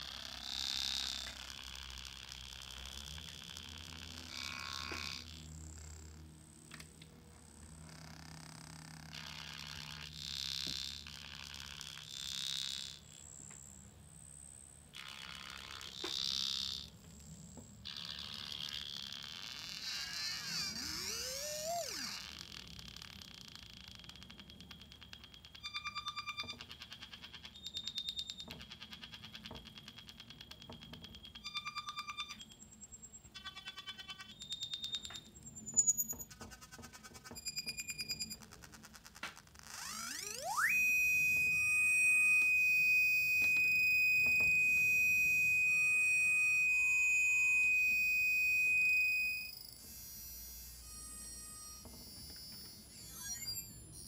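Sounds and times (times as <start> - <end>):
rapidly pulsing electronic beeps: 22.6 - 54.0
high steady synthesizer whine: 39.6 - 54.0.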